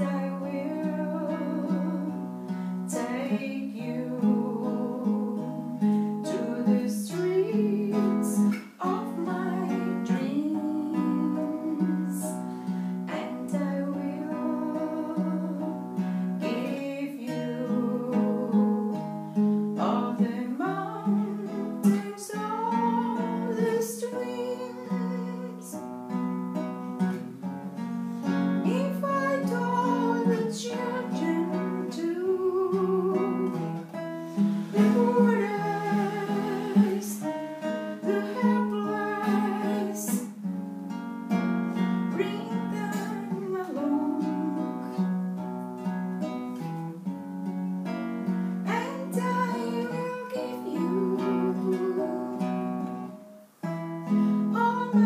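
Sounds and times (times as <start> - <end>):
woman singing: 0.0 - 26.2, 28.5 - 40.5, 42.0 - 45.2, 48.6 - 53.3, 54.4 - 55.0
classical guitar: 0.0 - 55.0.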